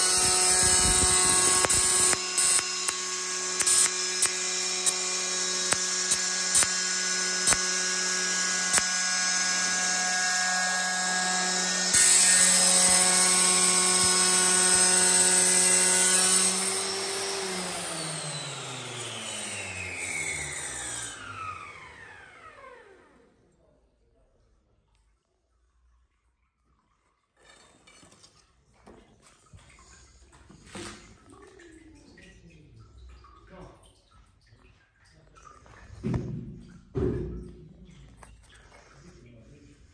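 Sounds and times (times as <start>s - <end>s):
tile cutter motor whining: 0.0s - 23.3s.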